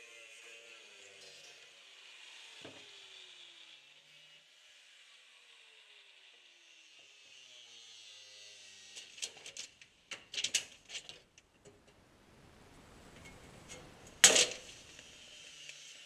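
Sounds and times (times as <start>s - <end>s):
faint steady hiss: 9.0s - 16.0s
sharp metal bang: 14.2s - 14.8s.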